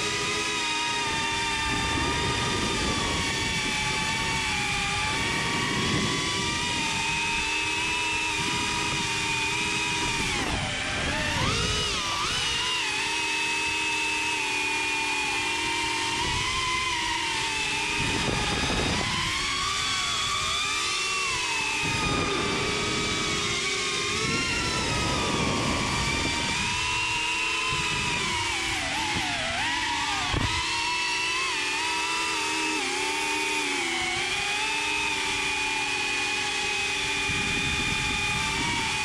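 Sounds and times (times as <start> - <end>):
drone propellers whining: 0.0 - 39.0.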